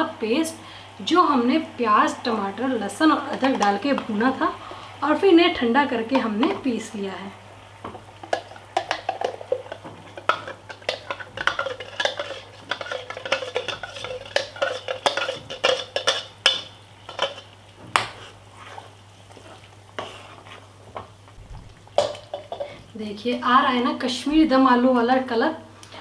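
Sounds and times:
light sizzle: 0:00.0 - 0:26.0
spoon scraping and clinking pan: 0:08.3 - 0:17.5, 0:22.0 - 0:22.8.

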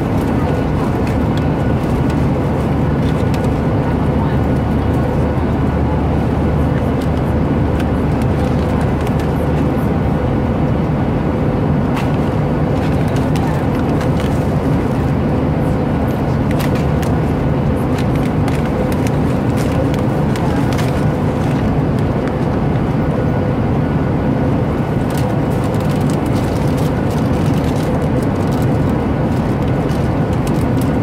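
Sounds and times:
airliner cabin drone: 0:00.0 - 0:31.0.

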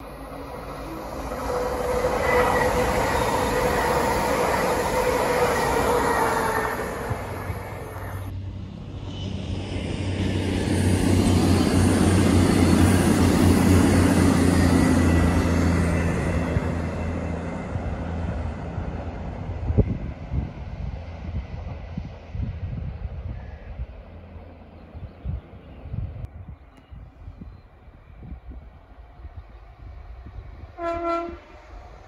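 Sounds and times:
diesel train engine drone: 0:00.0 - 0:32.0
electric train passing with whine: 0:00.0 - 0:32.0.

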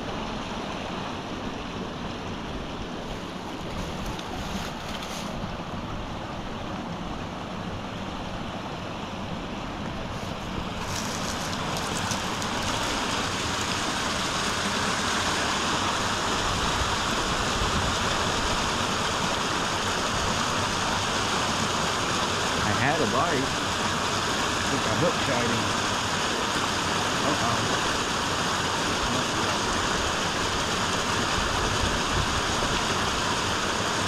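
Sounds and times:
brook rushing over rocks: 0:03.0 - 0:05.9, 0:10.0 - 0:34.0.

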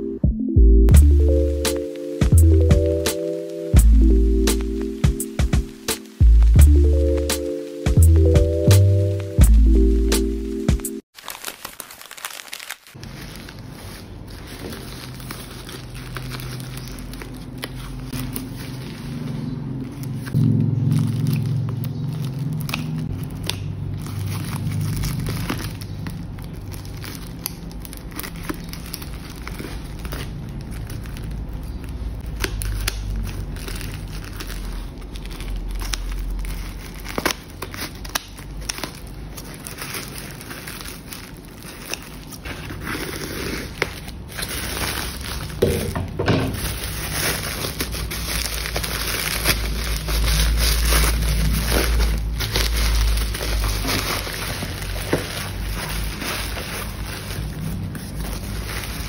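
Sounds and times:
plastic crinkling and tearing: 0:01.2 - 0:59.0
scissors snipping plastic: 0:22.2 - 0:24.6, 0:32.2 - 0:42.9.

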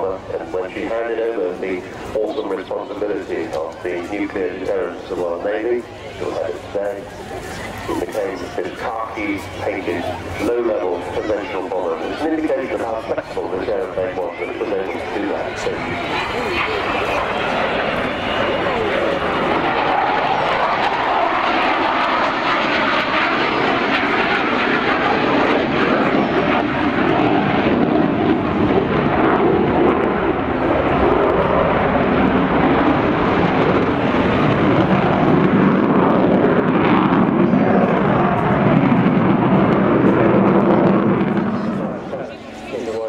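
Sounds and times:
jet aircraft flying past: 0:00.0 - 0:43.0.

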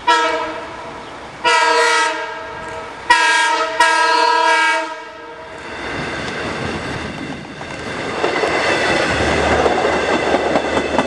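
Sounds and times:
train rumble: 0:00.0 - 0:11.0
train chime horn: 0:01.5 - 0:05.5.

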